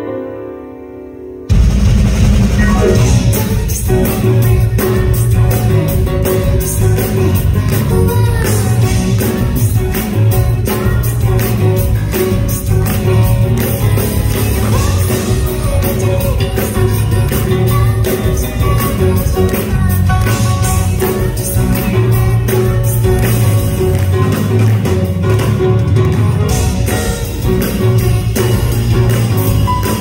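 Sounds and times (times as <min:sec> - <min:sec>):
grand piano: 0:00.0 - 0:30.0
band playing: 0:01.5 - 0:30.0
drums beat: 0:01.5 - 0:30.0
woman singing: 0:02.6 - 0:24.4.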